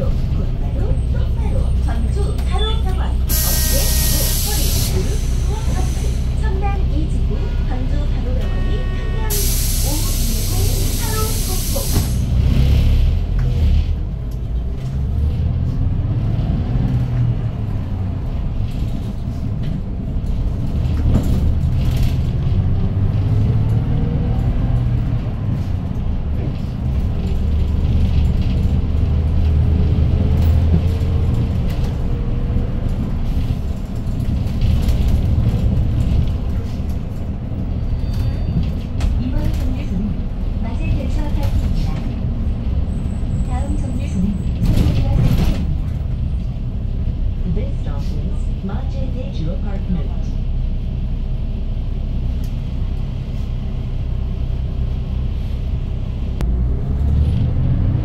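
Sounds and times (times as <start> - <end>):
bus engine accelerating: 0.0 - 58.0
air hiss: 3.3 - 6.3, 9.3 - 12.3.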